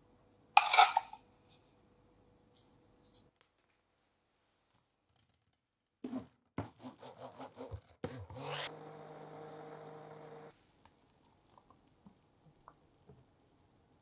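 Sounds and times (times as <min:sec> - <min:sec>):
stick blender motor: 0:08.1 - 0:10.5.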